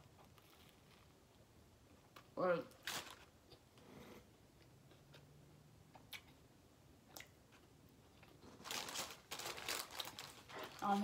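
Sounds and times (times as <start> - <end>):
crackly noise: 7.1 - 11.0.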